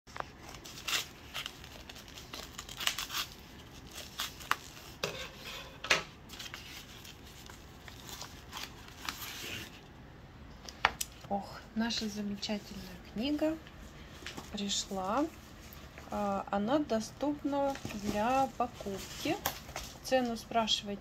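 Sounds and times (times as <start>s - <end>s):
envelope crinkling: 0.2s - 5.0s, 6.3s - 9.8s.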